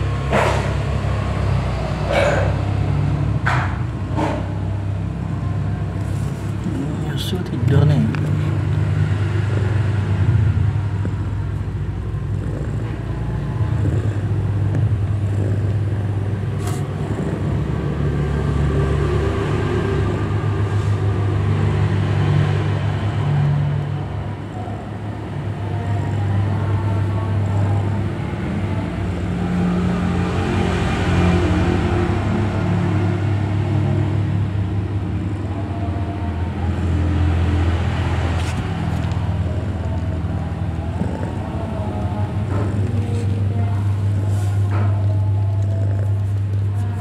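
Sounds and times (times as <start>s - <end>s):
cat purring: 4.7s - 20.3s, 24.7s - 32.2s, 36.5s - 47.0s.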